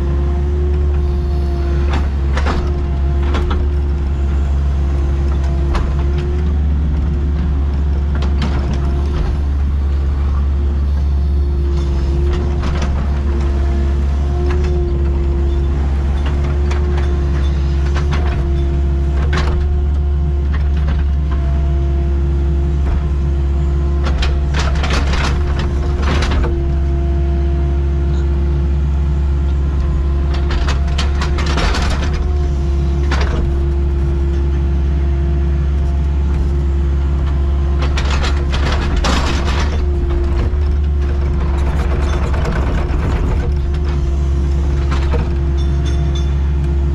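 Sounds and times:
excavator diesel engine running: 0.0 - 46.9
harsh machine working noise: 29.6 - 46.9.

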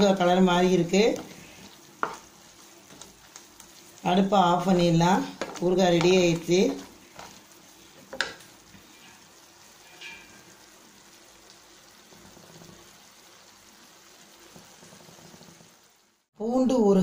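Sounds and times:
faint oil sizzling: 0.0 - 16.4
wooden spatula knocking pan: 2.0 - 3.1, 4.6 - 7.4, 8.0 - 8.4.

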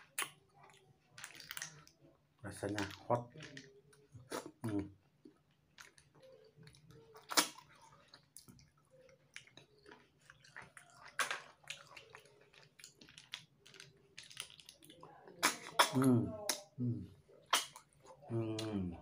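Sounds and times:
wet slurps and clicks: 0.0 - 2.0, 5.7 - 16.8, 17.4 - 19.0
person eating snails: 0.0 - 19.0.

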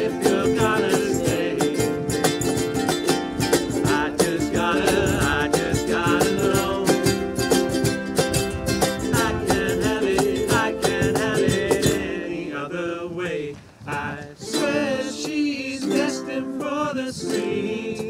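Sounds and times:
cajon: 0.0 - 12.2, 13.2 - 15.6
ukulele strumming: 0.0 - 12.7, 13.8 - 18.0
people singing together: 0.0 - 18.0.

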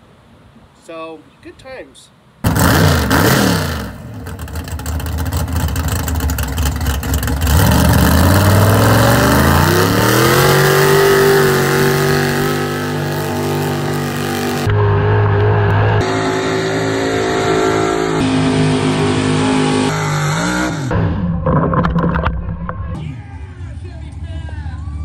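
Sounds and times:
truck engine at full throttle: 2.4 - 24.9
rough crackling noise: 21.4 - 23.0.

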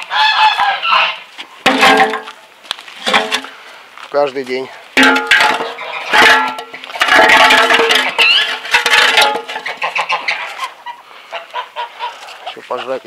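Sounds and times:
metal basin clanking on ground: 1.6 - 2.4, 3.0 - 3.5, 5.0 - 10.2
ice clattering and scraping: 5.0 - 10.7.

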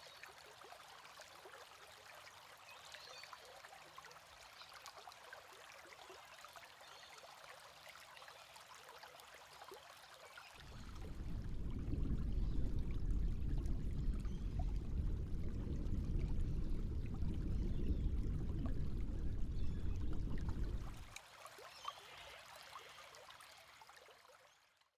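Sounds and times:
water trickling: 0.0 - 24.8
muffled underwater rumble: 10.6 - 21.1.

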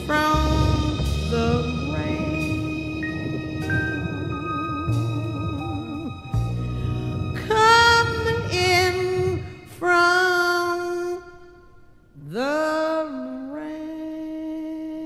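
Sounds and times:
slow jazz ballad: 0.0 - 9.3.

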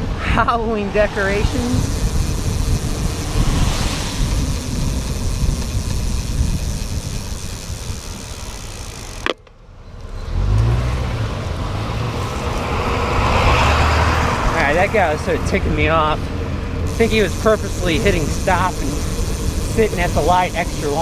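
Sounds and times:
wind rumbling on microphone: 0.0 - 9.2
tyre hiss on wet road: 1.4 - 7.8, 16.9 - 21.0.

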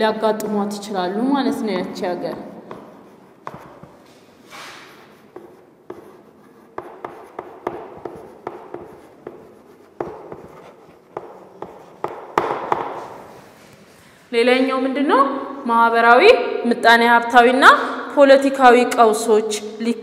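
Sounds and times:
pen writing by hand: 2.3 - 4.0, 4.8 - 13.2.

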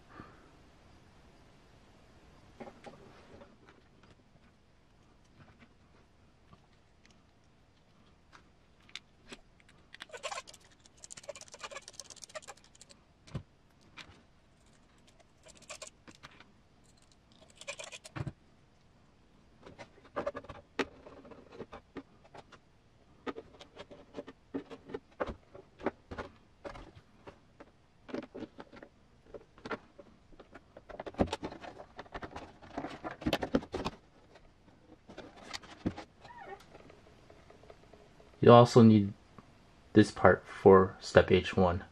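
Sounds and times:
plastic parts clicking and rattling: 8.3 - 18.4, 19.6 - 22.6, 23.2 - 38.4.

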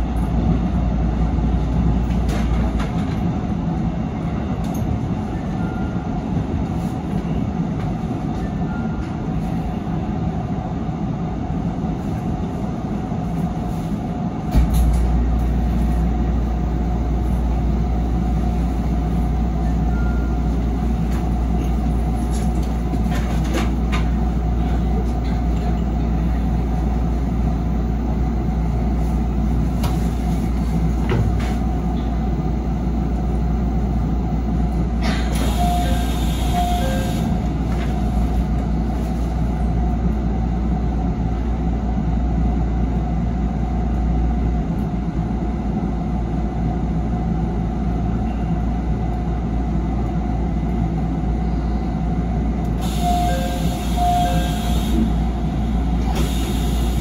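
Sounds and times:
train cab hum and rumble: 0.0 - 57.0
short beeps: 35.5 - 37.3, 53.0 - 54.8.

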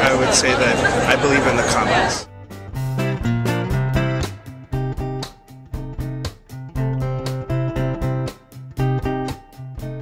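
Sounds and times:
plucked guitar notes: 2.3 - 10.0.

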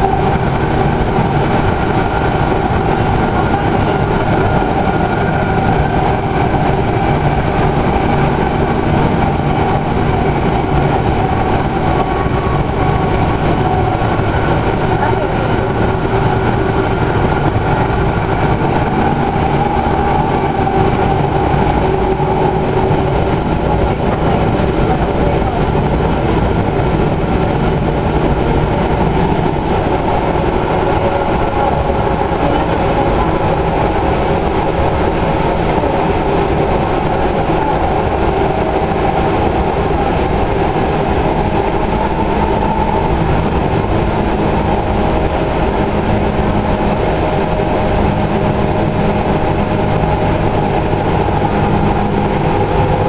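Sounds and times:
rumble of wheels on rail: 0.0 - 53.0.

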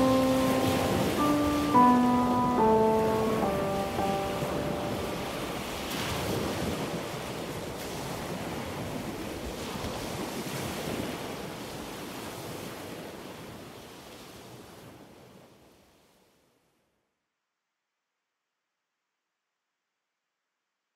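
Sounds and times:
ocean surf breaking on beach: 0.0 - 15.6.

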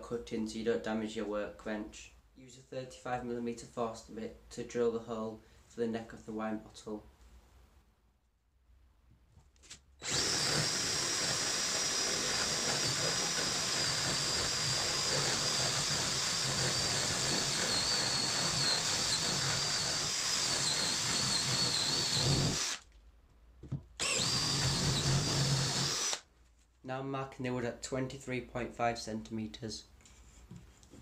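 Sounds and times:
cordless drill boring into wood: 10.0 - 22.8, 24.0 - 26.2.

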